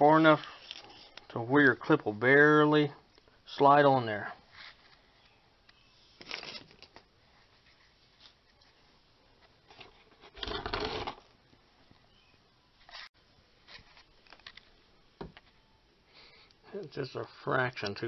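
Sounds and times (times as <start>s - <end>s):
rustling and handling noises: 0.2s - 1.3s, 4.4s - 16.6s.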